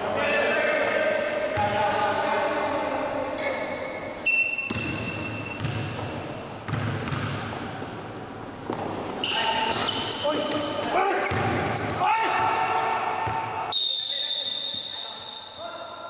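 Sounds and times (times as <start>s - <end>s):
basketball bouncing on a court: 4.7s - 7.6s.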